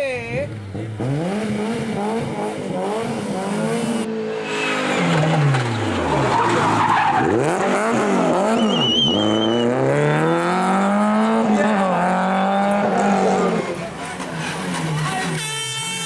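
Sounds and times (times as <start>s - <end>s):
rally car engine revving: 0.2s - 16.0s
tyre squeal: 8.3s - 10.3s.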